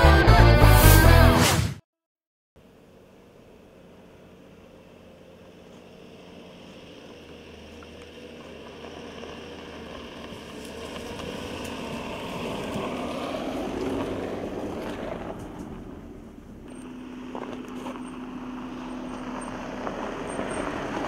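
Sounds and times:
car passing on dirt track: 2.6 - 21.0
small crackles: 6.6 - 12.9.

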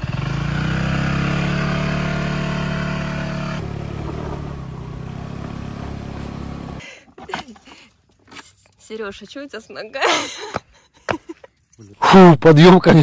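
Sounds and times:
motorbike engine climbing: 0.0 - 7.9.

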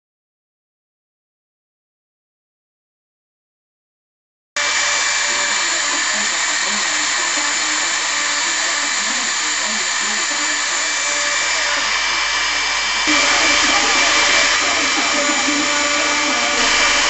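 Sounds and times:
hiss of wood cutting: 4.6 - 17.0
router spindle high-pitched whine: 4.6 - 17.0.

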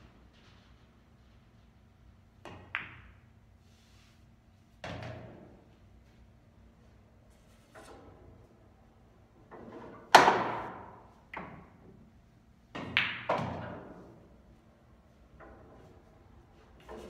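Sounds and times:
pool balls clacking: 12.8 - 14.1.

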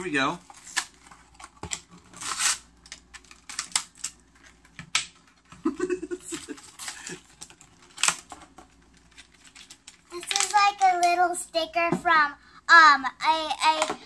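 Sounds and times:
foil packet crinkling: 0.4 - 4.8, 6.3 - 11.2.

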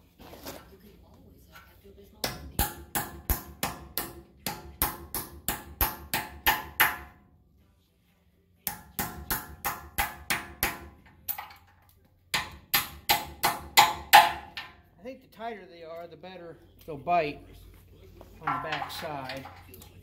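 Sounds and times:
hammer striking bolt: 12.4 - 14.8, 18.4 - 19.6.

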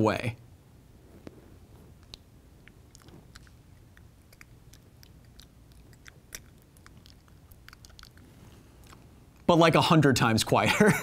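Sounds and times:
low room hum: 0.0 - 11.0
mouth clicks and crackles: 1.2 - 9.5.

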